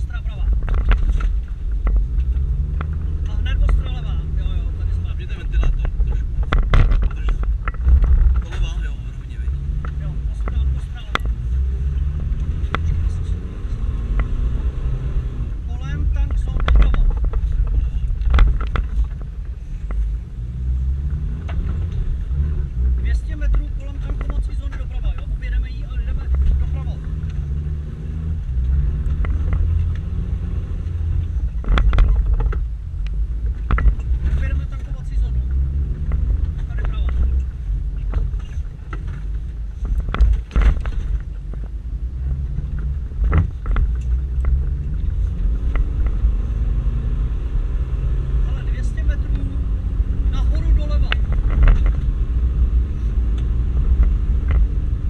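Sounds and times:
engine and drivetrain rumble: 0.0 - 55.0
car jolting knocks and rattles: 38.0 - 41.7.

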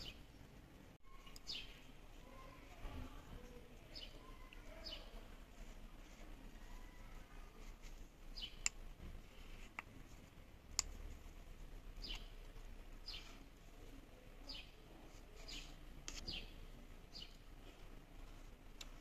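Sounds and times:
bird chirping: 0.0 - 0.5, 1.1 - 2.6, 8.3 - 8.8, 12.0 - 12.4, 14.4 - 17.5.

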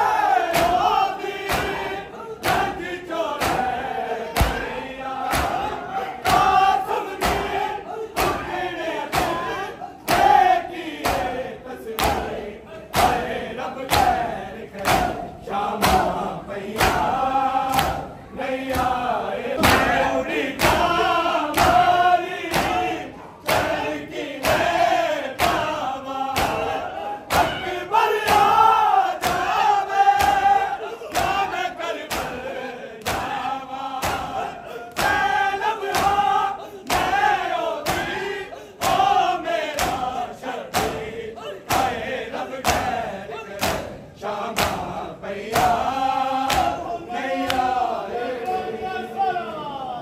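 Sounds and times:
men chanting in unison: 0.0 - 50.0
hands slapping chests: 0.5 - 3.8, 4.4 - 7.6, 8.2 - 9.5, 10.1 - 11.4, 12.0 - 16.2, 16.8 - 18.1, 19.6 - 31.5, 32.1 - 32.4, 33.0 - 41.1, 41.7 - 42.0, 42.6 - 43.0, 43.6 - 46.8, 47.4 - 47.8.

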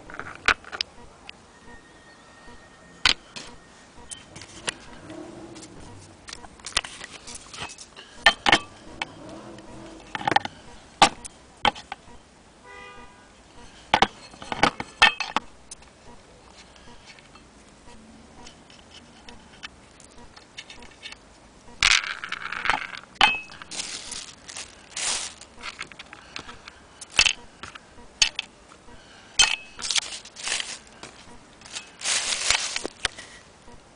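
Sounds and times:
plastic bag crinkling: 23.5 - 26.0, 29.8 - 33.4.

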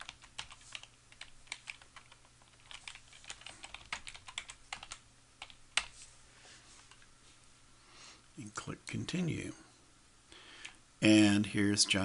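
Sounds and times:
computer keyboard keystrokes: 0.0 - 5.9.

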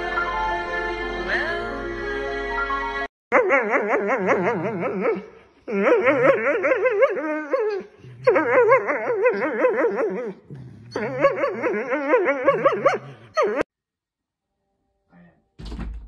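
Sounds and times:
dog whining in warbles: 3.3 - 13.7.

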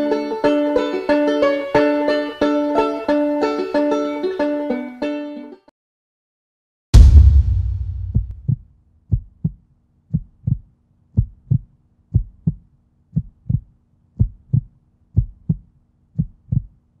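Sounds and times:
heartbeat thumps: 7.0 - 16.8.

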